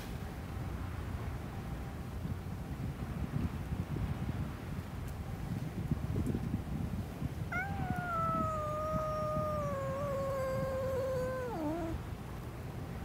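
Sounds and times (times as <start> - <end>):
raccoon dog whining cry: 7.5 - 12.0.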